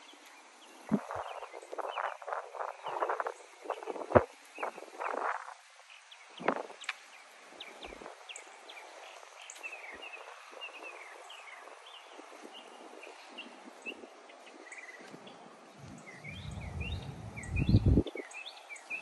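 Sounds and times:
steady outdoor hiss: 0.0s - 19.0s
bird chirps: 0.8s - 3.9s, 15.8s - 19.0s
wind buffeting microphone: 0.8s - 5.7s, 6.4s - 9.3s, 10.1s - 18.4s.

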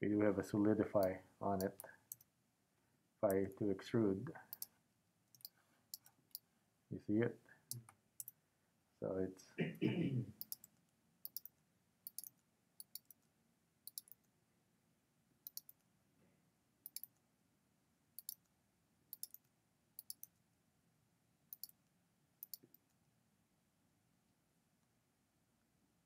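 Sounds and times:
mouse and key clicks: 4.5s - 4.7s, 5.3s - 6.4s, 10.4s - 13.2s, 13.9s - 14.3s, 15.4s - 15.8s, 16.8s - 17.2s, 18.2s - 18.5s, 19.1s - 20.4s, 21.5s - 21.8s, 22.4s - 22.9s.

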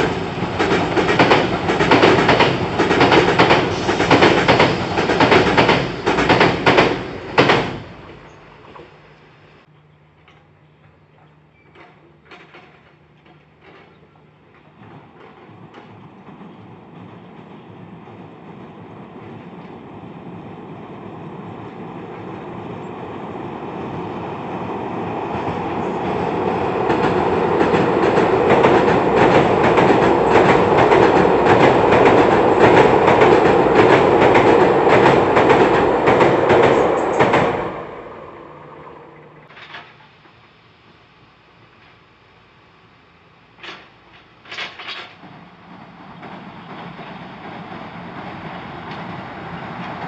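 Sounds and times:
train wheels clattering on bridge: 0.0s - 9.0s, 11.7s - 19.9s, 23.9s - 40.0s, 43.6s - 50.0s.

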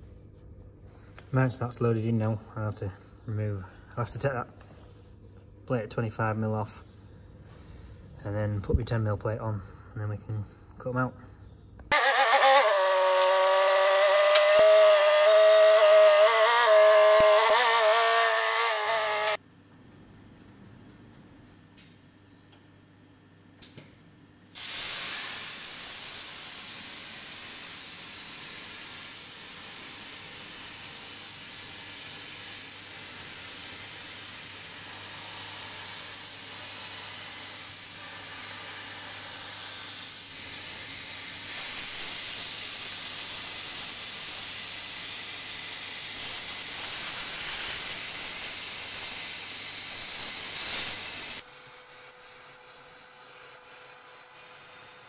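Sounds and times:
plasma cutter hissing: 24.6s - 51.4s.

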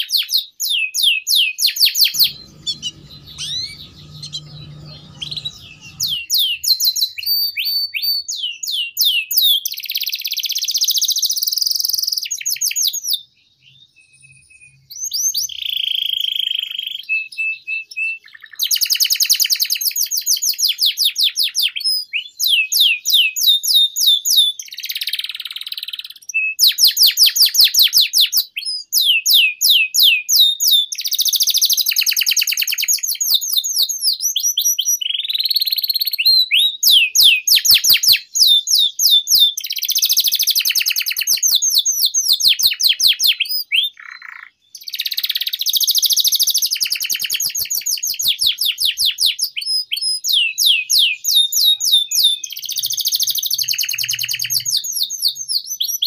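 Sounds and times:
canary singing trills: 2.1s - 7.2s, 49.6s - 56.0s.

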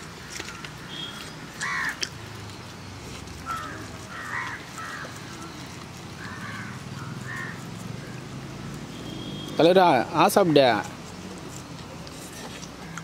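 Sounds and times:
crow cawing: 1.6s - 2.0s, 3.4s - 5.2s, 6.2s - 8.2s.

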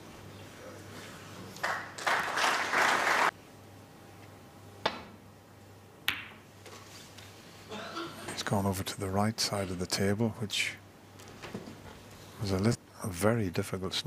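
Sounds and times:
audience applauding: 1.6s - 3.3s.

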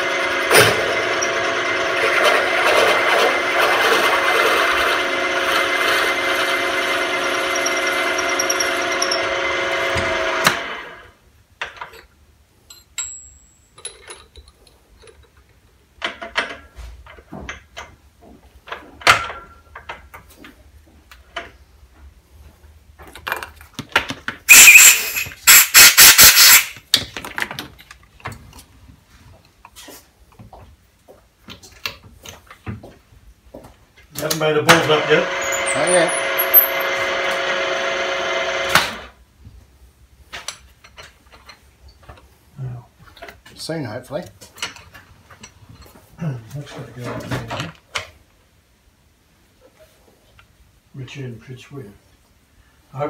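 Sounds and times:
loud scraping rattle: 0.0s - 10.8s, 34.8s - 39.0s
drill motor whining: 0.0s - 11.1s, 34.7s - 39.1s.

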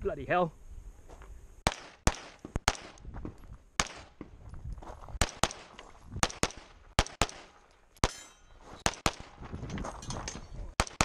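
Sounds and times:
pistol shots: 1.6s - 3.0s, 3.8s - 4.2s, 5.2s - 9.4s, 10.8s - 11.0s
high ringing: 8.0s - 8.8s.

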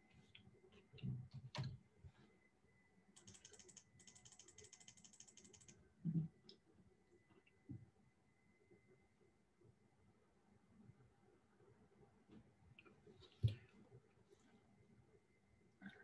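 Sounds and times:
keyboard typing: 3.2s - 5.8s.

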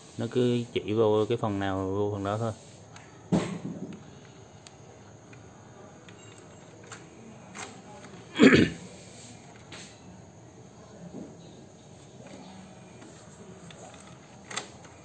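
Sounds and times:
cough-like throat sound: 8.3s - 8.8s.

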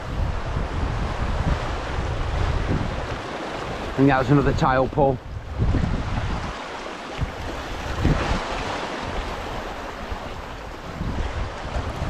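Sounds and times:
waves breaking over rocks: 0.0s - 12.0s
wind buffeting microphone: 0.0s - 12.0s.

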